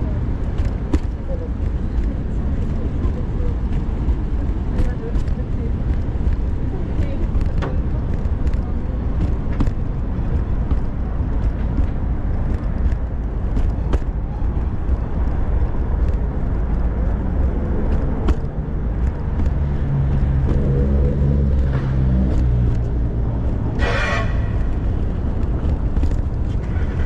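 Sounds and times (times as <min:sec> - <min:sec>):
city street traffic rumble: 0:00.0 - 0:27.0
vehicle engine humming by: 0:00.0 - 0:27.0
car horn toot: 0:23.8 - 0:24.7.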